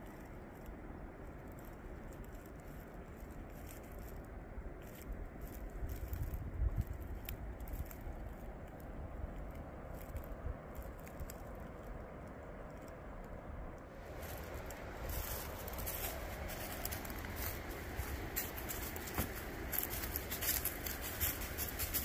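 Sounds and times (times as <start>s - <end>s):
steady outdoor noise: 0.0s - 22.0s
footsteps on leaves: 13.9s - 22.0s.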